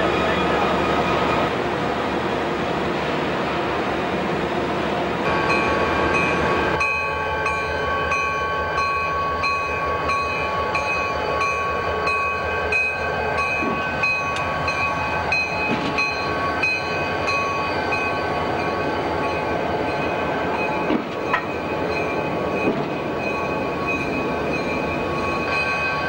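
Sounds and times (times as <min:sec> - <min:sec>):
diesel locomotive rumbling: 0:00.0 - 0:26.0
locomotive bell ringing: 0:05.3 - 0:26.0.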